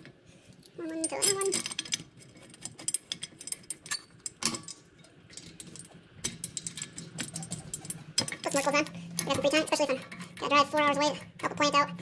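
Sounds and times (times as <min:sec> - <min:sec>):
metal bolts clicking and clinking: 0:00.0 - 0:11.6.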